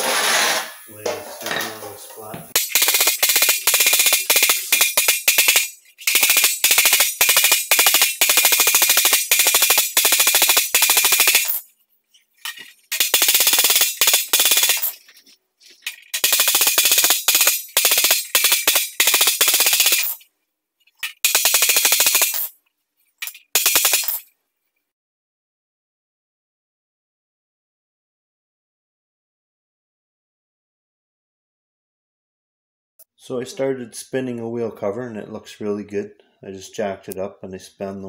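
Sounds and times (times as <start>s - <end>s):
hammer beating sheet metal: 0.0s - 0.9s, 2.6s - 11.6s, 12.5s - 15.0s, 16.2s - 20.2s.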